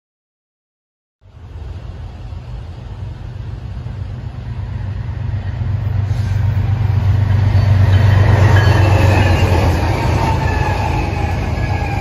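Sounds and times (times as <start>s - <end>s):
diesel locomotive engine drone: 1.2s - 12.0s
train rail noise: 1.2s - 12.0s.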